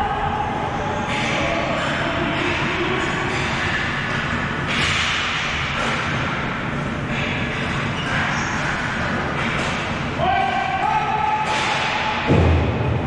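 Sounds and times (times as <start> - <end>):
hockey sticks and ball clattering: 1.1 - 12.3
stick hits and slaps: 11.4 - 12.6.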